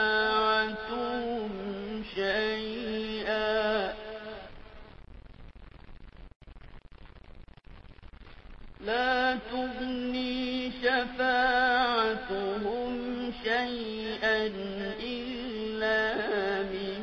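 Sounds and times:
person reciting melodically: 0.0s - 4.5s, 8.8s - 17.0s
faint hiss: 0.0s - 17.0s.

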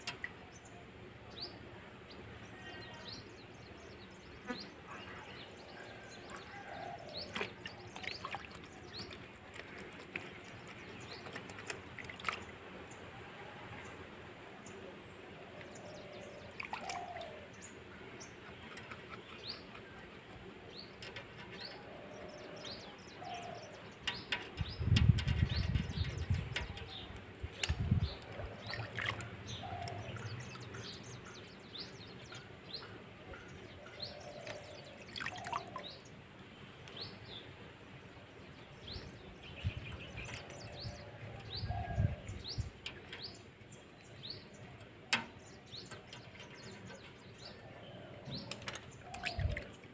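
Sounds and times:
birds chirping: 0.0s - 49.9s.

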